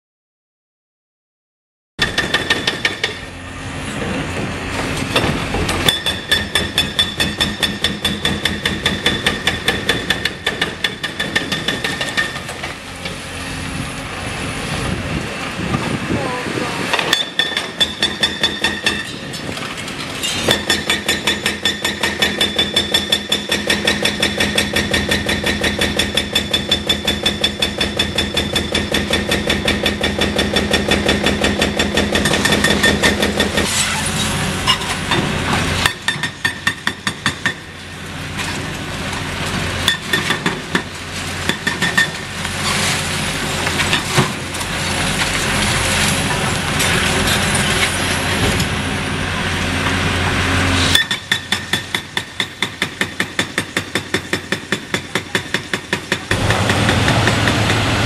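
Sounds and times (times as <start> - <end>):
hydraulic breaker hammering concrete: 2.0 - 3.3, 4.0 - 12.8, 16.9 - 19.3, 20.4 - 33.7, 35.0 - 37.8, 39.8 - 42.3, 50.9 - 58.0
diesel engine running: 12.4 - 17.0, 42.1 - 51.4, 56.2 - 58.0.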